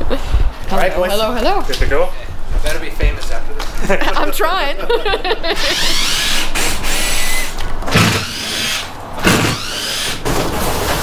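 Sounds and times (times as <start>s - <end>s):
cardboard scraping and rubbing: 10.1s - 11.0s.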